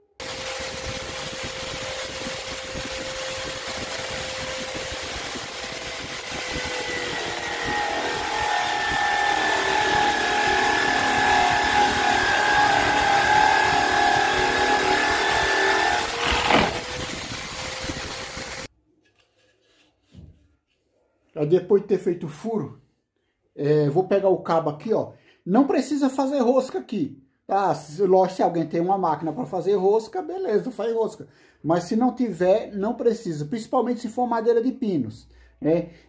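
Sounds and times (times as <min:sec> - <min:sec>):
electric drill boring into wood: 0:00.0 - 0:18.7.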